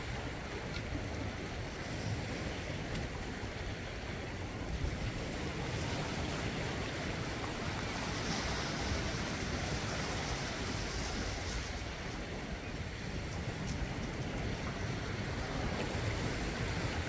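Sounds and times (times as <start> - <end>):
waves washing over rocks: 0.0 - 17.0
wind rumble on microphone: 0.0 - 17.0.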